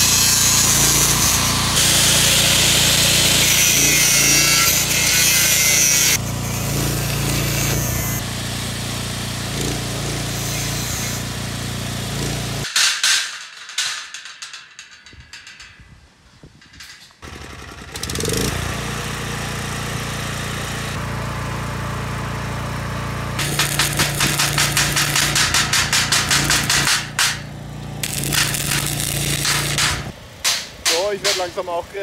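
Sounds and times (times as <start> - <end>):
angle grinder cutting steel: 0.0 - 8.2, 9.3 - 12.7, 23.4 - 30.1
petrol generator running: 17.2 - 30.4.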